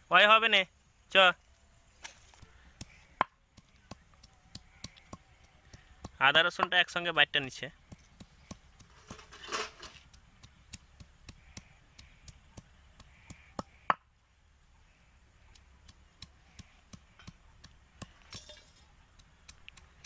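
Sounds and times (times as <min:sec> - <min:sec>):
stone roller knocking on stone: 0:08.2 - 0:10.0.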